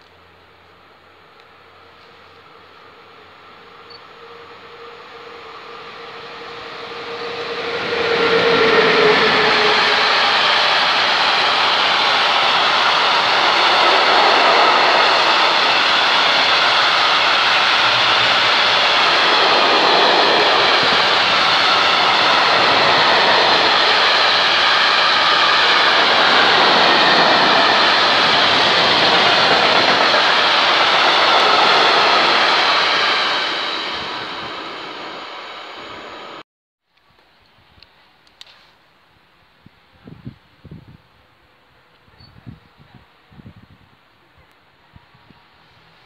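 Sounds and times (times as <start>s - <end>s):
freight train rolling past: 0.2s - 36.4s
wheels on rails: 3.9s - 36.4s.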